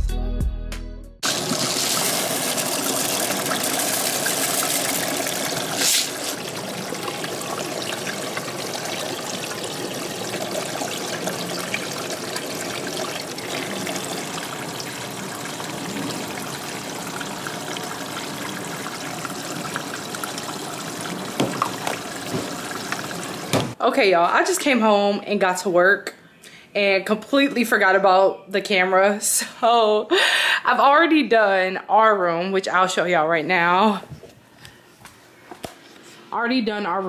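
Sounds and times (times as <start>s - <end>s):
liquid detergent pouring: 1.2s - 23.8s
washing machines running: 1.2s - 23.8s.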